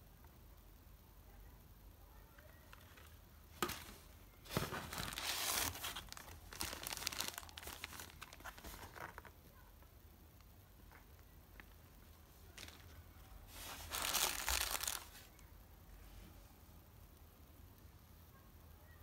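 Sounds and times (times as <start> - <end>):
packaging crinkling: 4.5 - 9.3, 13.6 - 15.4.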